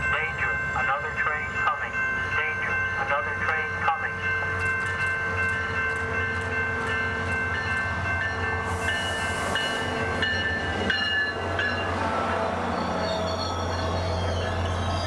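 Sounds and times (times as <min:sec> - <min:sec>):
train engine hum: 0:00.0 - 0:15.0
wheels squealing: 0:08.8 - 0:15.0.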